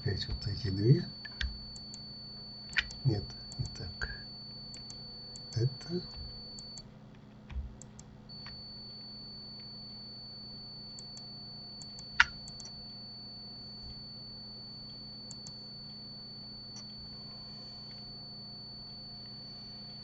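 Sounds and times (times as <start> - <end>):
faint high whine: 0.0 - 6.9, 7.6 - 20.0
electrical hum: 0.0 - 20.0
keyboard and mouse clicks: 7.5 - 8.6, 11.8 - 12.7.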